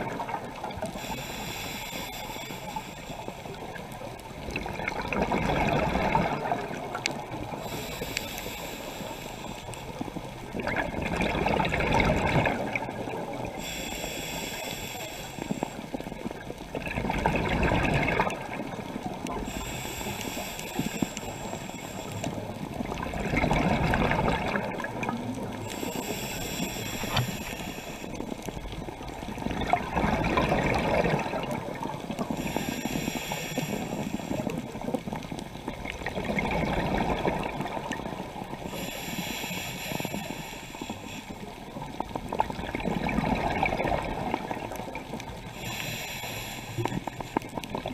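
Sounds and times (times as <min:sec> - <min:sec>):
diver breathing through regulator: 0:00.8 - 0:03.6, 0:07.5 - 0:10.0, 0:13.4 - 0:16.0, 0:19.4 - 0:22.5, 0:25.6 - 0:28.6, 0:32.2 - 0:34.7, 0:38.6 - 0:41.6, 0:45.5 - 0:47.9
exhaled bubbles rushing: 0:04.3 - 0:07.6, 0:10.5 - 0:13.6, 0:16.6 - 0:19.5, 0:22.6 - 0:25.7, 0:26.9 - 0:32.4, 0:34.8 - 0:38.7, 0:42.0 - 0:45.5.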